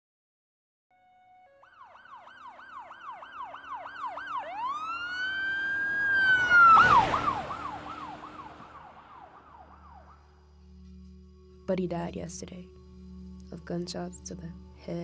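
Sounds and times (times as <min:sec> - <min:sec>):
emergency siren yelping and wailing: 0:01.5 - 0:10.3
passing vehicle rush: 0:02.7 - 0:10.6.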